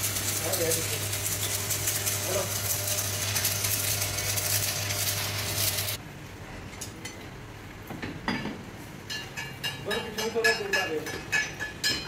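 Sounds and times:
metallic cutting hiss: 0:00.0 - 0:06.0.

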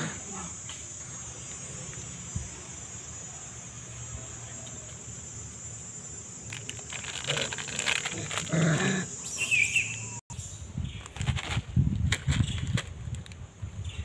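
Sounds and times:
high insect buzz: 0:00.0 - 0:10.2
rustling: 0:06.4 - 0:08.6.

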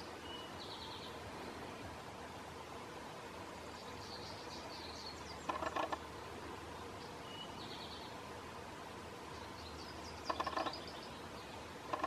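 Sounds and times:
faint songbird chirps: 0:00.0 - 0:02.5, 0:03.4 - 0:08.4, 0:09.2 - 0:12.0
woodpecker pecking wood: 0:05.4 - 0:06.0, 0:10.2 - 0:10.9.

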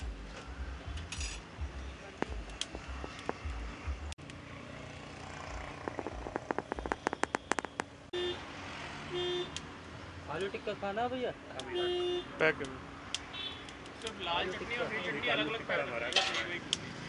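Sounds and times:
traffic rumble: 0:00.0 - 0:17.0
quick run of clicks: 0:05.8 - 0:07.9
vehicle horn tooting: 0:08.2 - 0:08.4.

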